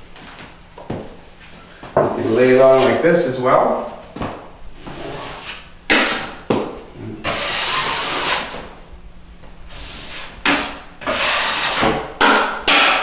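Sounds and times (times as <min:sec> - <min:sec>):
drywall knife scraping compound: 0:04.8 - 0:06.5, 0:07.2 - 0:08.6, 0:09.7 - 0:13.0.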